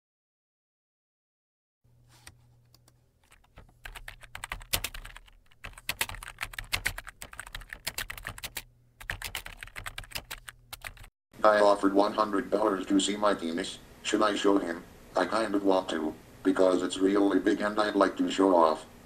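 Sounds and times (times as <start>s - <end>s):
faint low electrical hum: 1.9s - 19.0s
computer keyboard typing: 2.7s - 11.1s.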